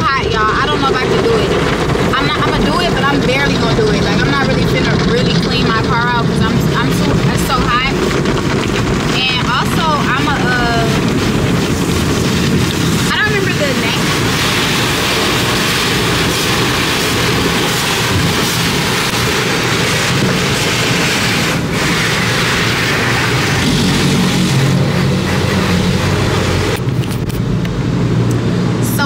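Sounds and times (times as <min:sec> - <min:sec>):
car wash brushes beating: 0:00.0 - 0:27.4
low machine hum: 0:00.0 - 0:29.0
water spray: 0:09.0 - 0:27.1.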